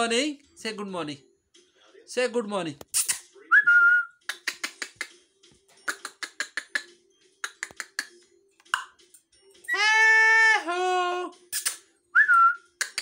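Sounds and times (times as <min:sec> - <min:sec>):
parrot sharp clicks: 0:05.9 - 0:08.1, 0:12.8 - 0:13.0
parrot whistling: 0:12.2 - 0:13.0.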